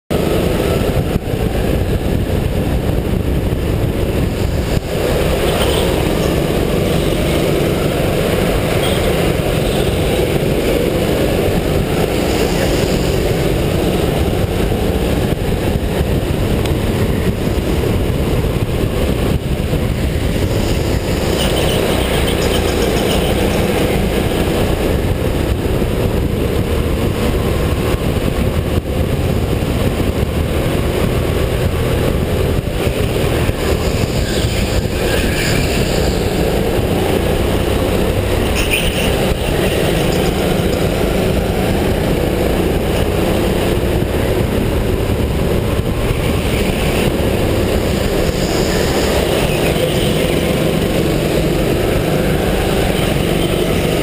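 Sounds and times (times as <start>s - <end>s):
go-kart engine at speed: 0.1s - 54.0s.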